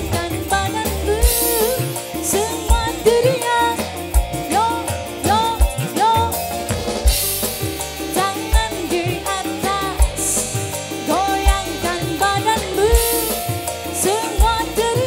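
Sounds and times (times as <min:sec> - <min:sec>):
live band music: 0:00.0 - 0:15.0
bass drum hits: 0:06.6 - 0:08.9.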